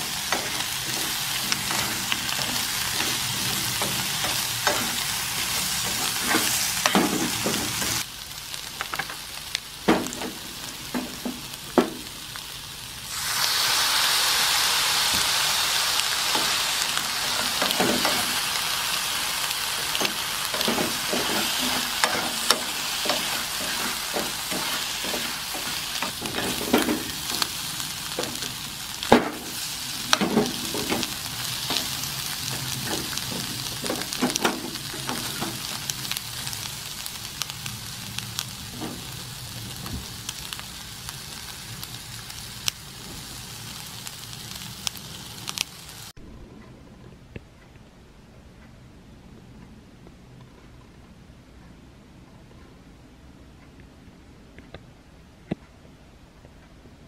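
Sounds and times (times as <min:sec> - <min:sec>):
spatula knocking and scraping pan: 0:00.0 - 0:08.0, 0:17.2 - 0:18.4, 0:19.9 - 0:35.9
food sizzling in frying pan: 0:00.0 - 0:46.2.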